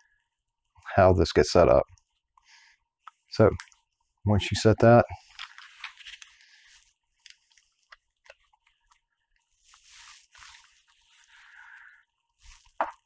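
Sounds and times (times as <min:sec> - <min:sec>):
soft scraping or rustling: 0:09.4 - 0:11.7.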